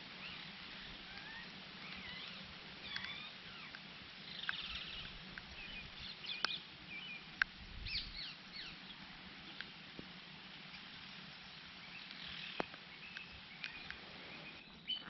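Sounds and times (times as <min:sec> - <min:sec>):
birds chirping and whistling: 0:07.8 - 0:08.8, 0:11.9 - 0:15.0.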